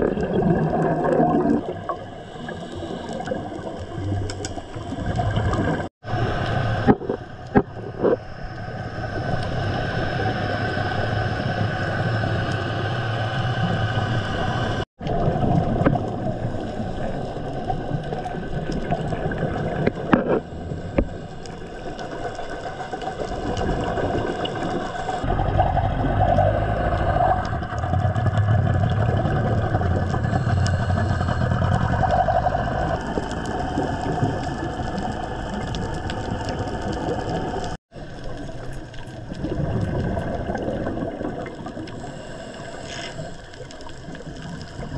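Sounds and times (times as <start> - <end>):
underwater hiss and hum: 0.0 - 44.9
low rumble: 25.2 - 37.8.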